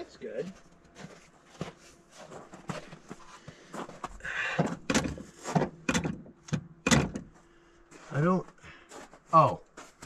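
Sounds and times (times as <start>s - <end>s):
clunks and knocks on engine: 4.5s - 7.4s.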